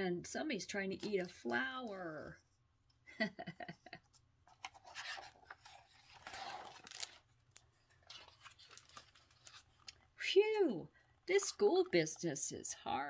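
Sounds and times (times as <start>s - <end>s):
paper page rustling: 4.4s - 10.0s.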